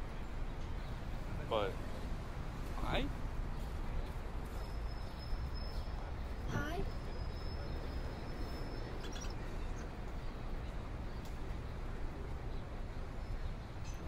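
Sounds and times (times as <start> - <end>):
outdoor background noise: 0.0 - 14.0
faint bird chirps: 4.5 - 10.4.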